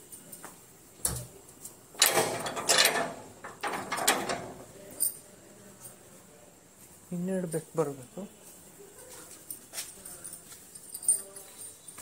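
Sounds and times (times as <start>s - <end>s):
gate rattling and scraping: 2.0s - 4.8s.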